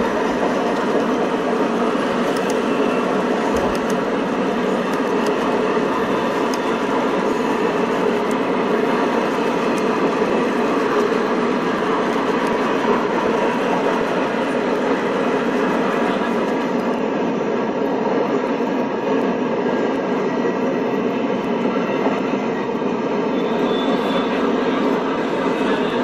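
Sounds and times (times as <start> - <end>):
model trains rolling on track: 0.0 - 17.0.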